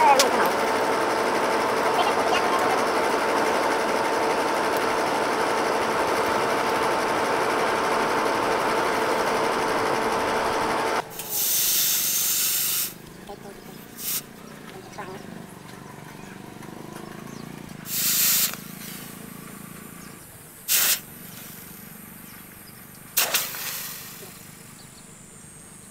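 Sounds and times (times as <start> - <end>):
air blower whining: 0.0 - 24.9
hot blade hissing in water: 11.1 - 13.0, 17.9 - 19.1, 20.7 - 21.1, 23.2 - 24.4.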